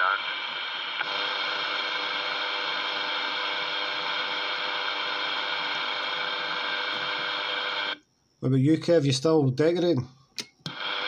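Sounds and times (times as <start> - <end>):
radio static with buzzy whine: 0.0 - 8.0, 10.7 - 11.0.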